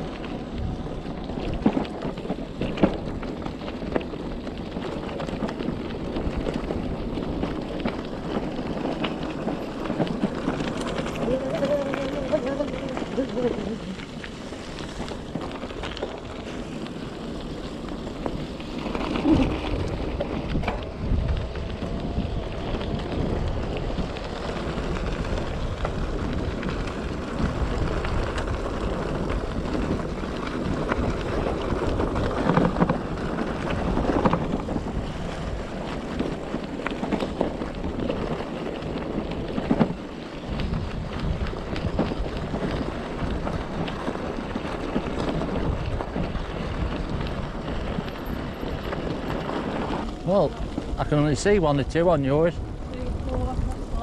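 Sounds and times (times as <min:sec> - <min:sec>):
tyres on gravel: 0:00.0 - 0:54.0
wind rushing over microphone: 0:00.0 - 0:54.0.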